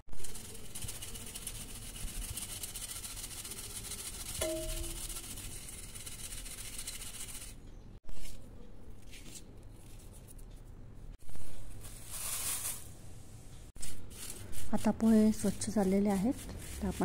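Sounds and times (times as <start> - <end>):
dry flakes rustling in sieve: 0.1 - 7.5, 11.3 - 13.0, 13.8 - 17.0
hiss of pouring flakes: 12.0 - 12.9.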